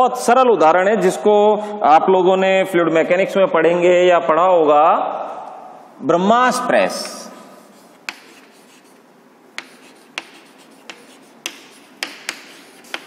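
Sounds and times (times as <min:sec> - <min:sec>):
chalk tapping on board: 0:07.0 - 0:09.0, 0:09.6 - 0:13.0
chalk scratching on blackboard: 0:07.5 - 0:13.0.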